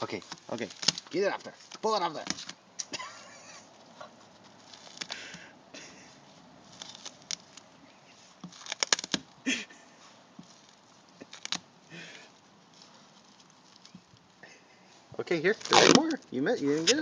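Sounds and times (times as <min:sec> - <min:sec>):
dog tearing at rubbery coating: 0:00.0 - 0:02.6, 0:03.9 - 0:05.4, 0:06.0 - 0:09.4, 0:10.4 - 0:14.3, 0:15.4 - 0:17.0.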